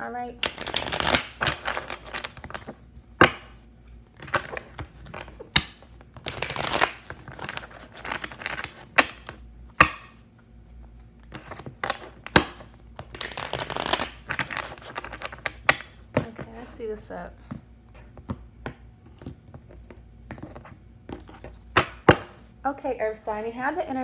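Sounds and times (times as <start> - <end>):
cards slapping: 0.4 - 3.6, 4.2 - 10.2, 11.3 - 16.3
cards shuffling: 0.4 - 10.2, 11.1 - 16.7, 17.9 - 22.4.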